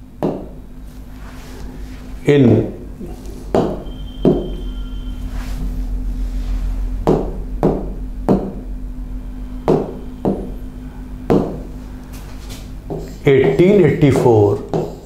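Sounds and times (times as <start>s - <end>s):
steady low hum: 0.0s - 15.0s
sharp ringing knocks: 3.5s - 5.0s, 9.4s - 10.7s.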